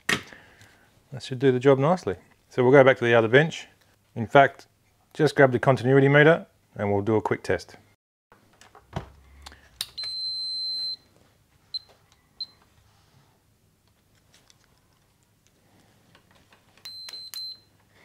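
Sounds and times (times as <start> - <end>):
multimeter beeps: 10.0 - 11.1, 11.7 - 12.6, 16.8 - 17.7.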